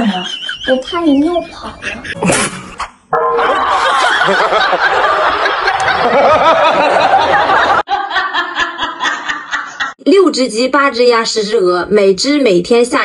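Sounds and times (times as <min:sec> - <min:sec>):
several voices laughing: 0:00.0 - 0:10.0.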